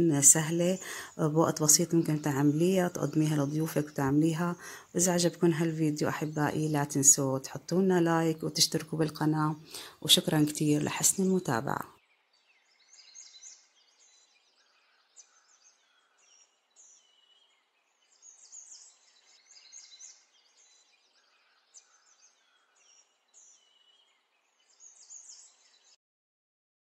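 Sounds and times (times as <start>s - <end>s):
faint bird chirps and twitters: 0.1s - 26.0s.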